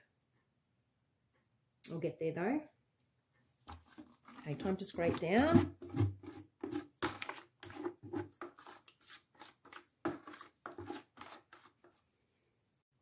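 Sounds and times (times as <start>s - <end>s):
spatula scraping plastic bucket: 3.6s - 12.1s.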